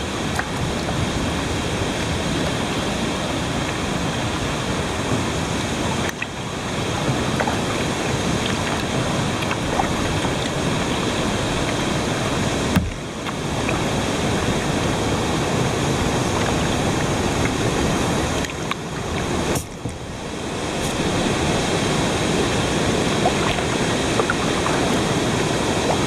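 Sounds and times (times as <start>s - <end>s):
water rushing into river: 0.0s - 26.0s.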